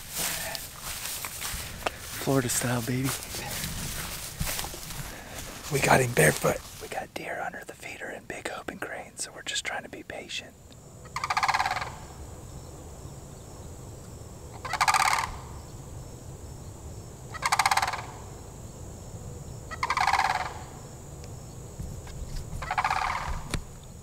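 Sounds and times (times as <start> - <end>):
animal rattling call: 11.1 - 12.0, 14.6 - 15.4, 17.4 - 18.2, 19.7 - 20.6, 22.6 - 23.5.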